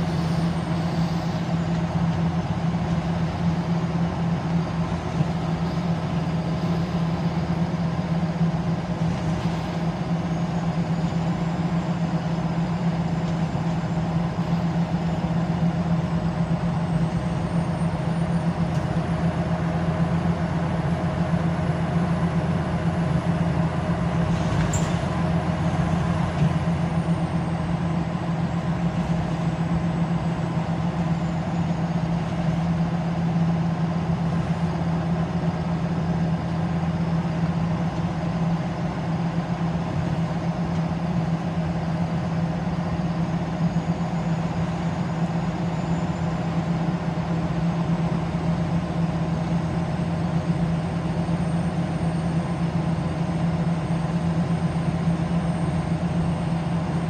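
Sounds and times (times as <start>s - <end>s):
bus engine drone: 0.0s - 57.0s
road and running noise: 0.0s - 57.0s.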